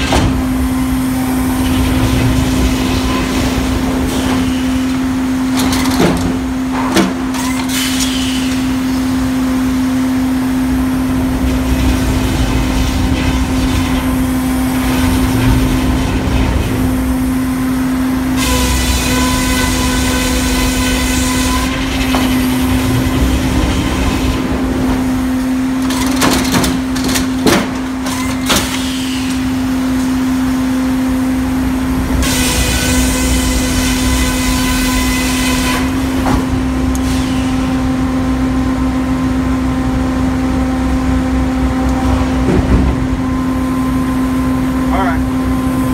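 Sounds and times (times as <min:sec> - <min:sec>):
sawmill machinery hum: 0:00.0 - 0:45.9
circular saw cutting wood: 0:18.3 - 0:24.5, 0:32.2 - 0:36.0.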